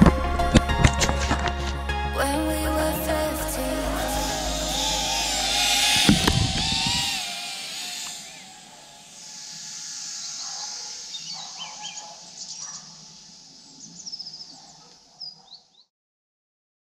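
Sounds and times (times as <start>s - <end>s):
outdoor hiss: 3.3s - 15.0s
small birds chirping: 5.6s - 15.9s.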